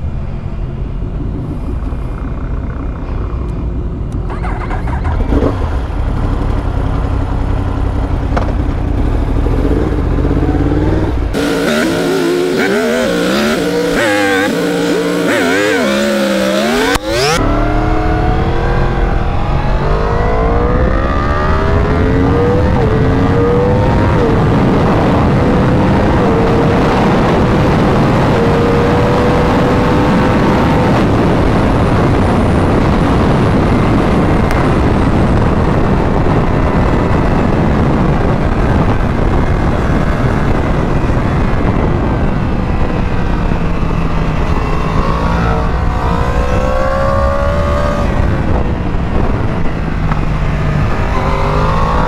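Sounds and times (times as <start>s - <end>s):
motorcycle engine accelerating: 0.0s - 52.0s
wind noise: 0.0s - 52.0s
high-pitched warbling engine sound: 9.4s - 24.5s.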